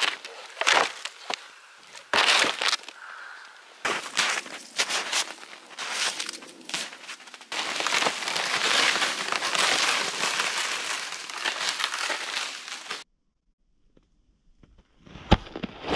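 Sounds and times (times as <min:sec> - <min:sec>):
footsteps crunching in snow: 0:00.0 - 0:03.0, 0:03.8 - 0:13.0
plastic sled dragged over snow: 0:03.9 - 0:13.0.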